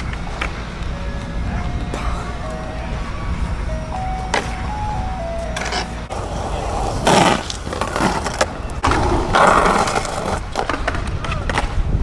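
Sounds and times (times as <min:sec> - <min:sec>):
skateboard wheels rolling on concrete: 0:00.0 - 0:12.0
skateboard grinding on concrete ledge: 0:05.6 - 0:11.0.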